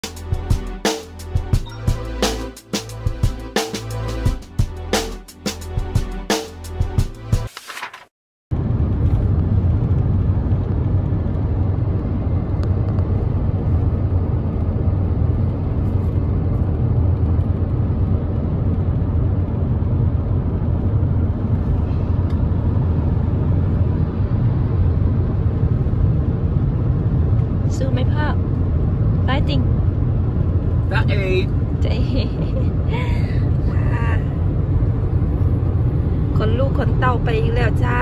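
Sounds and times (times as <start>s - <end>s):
car cabin road rumble: 8.5s - 38.0s.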